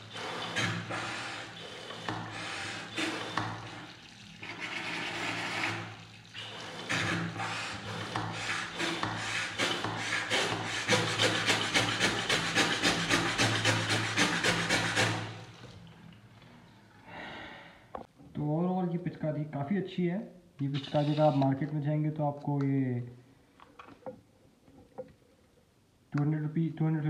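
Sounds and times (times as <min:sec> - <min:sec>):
tap water splashing into basin: 0:03.3 - 0:04.2.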